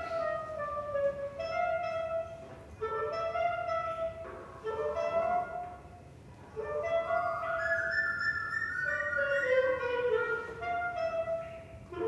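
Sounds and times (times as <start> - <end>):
clarinet playing phrases: 0.0 - 12.0.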